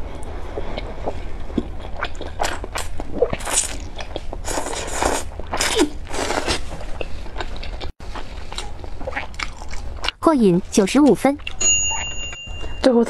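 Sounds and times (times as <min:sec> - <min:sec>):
person chewing: 0:00.2 - 0:10.2, 0:11.4 - 0:12.8
person slurping noodles: 0:04.4 - 0:06.7.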